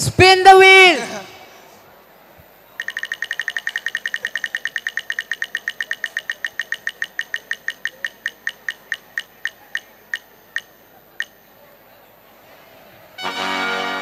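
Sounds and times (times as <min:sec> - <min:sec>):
spinning wheel ticking: 0:02.8 - 0:11.4.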